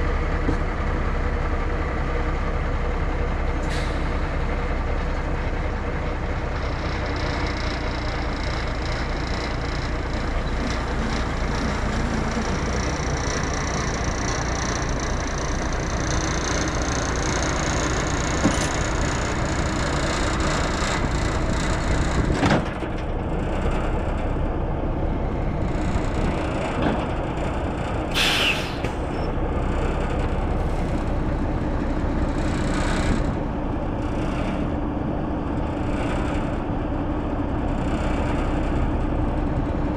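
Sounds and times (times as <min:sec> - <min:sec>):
diesel truck engine running: 0:00.0 - 0:39.9
air brake hiss: 0:03.6 - 0:04.1, 0:28.1 - 0:29.0.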